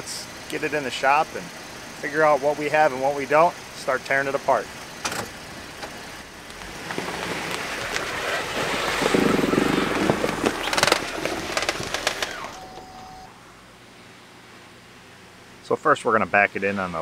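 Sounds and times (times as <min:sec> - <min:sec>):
car engine running: 0:00.4 - 0:13.3
tyres rolling on gravel: 0:03.9 - 0:13.3.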